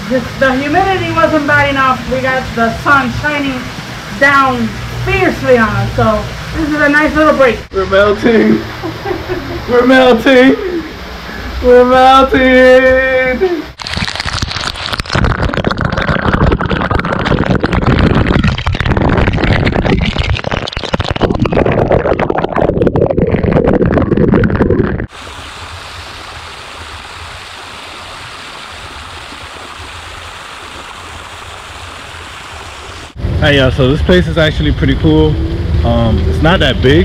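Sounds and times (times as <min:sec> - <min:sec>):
rush of falling water: 0:00.0 - 0:21.3, 0:25.1 - 0:37.0
water splashing over rock: 0:13.8 - 0:33.2.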